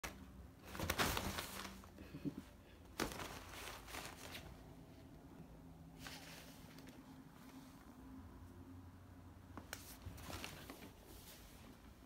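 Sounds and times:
fabric tunnel rustling: 0.0s - 2.0s, 2.9s - 4.7s, 9.7s - 12.0s.

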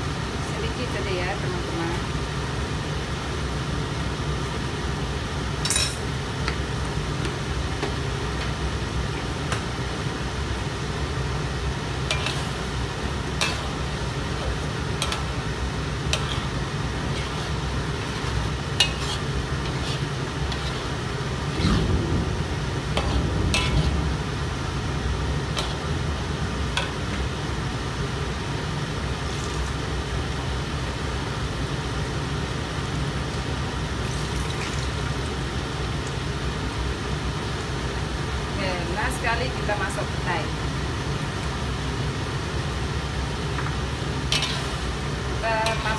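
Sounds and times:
metal spatula scraping a wok: 12.1s - 12.7s, 16.1s - 22.0s, 23.0s - 24.0s, 44.3s - 44.9s
low hum: 20.4s - 28.2s.

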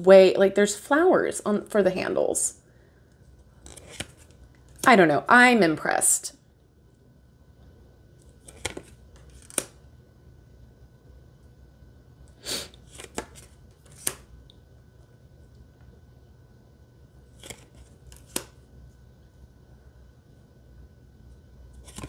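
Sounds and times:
faint room hum: 0.0s - 22.0s
cards sliding and snapping: 3.4s - 4.9s, 8.2s - 9.8s, 12.7s - 14.3s, 17.3s - 18.6s, 21.7s - 22.0s.

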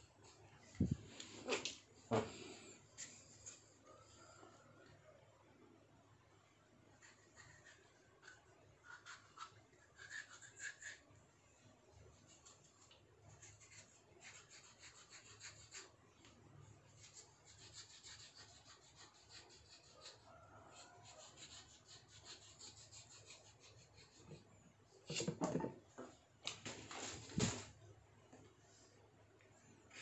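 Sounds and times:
knife scraping vegetable skin: 7.0s - 11.0s, 13.4s - 15.9s, 16.9s - 24.4s.

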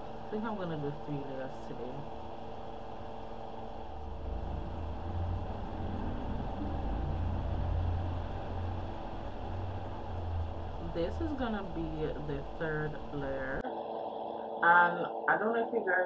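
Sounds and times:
low rumble: 0.0s - 14.7s
electric fan humming: 0.0s - 16.0s.

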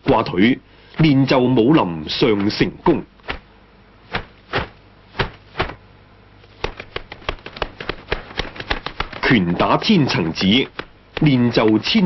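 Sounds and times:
sharp knocks: 4.1s - 5.8s, 6.6s - 9.8s.

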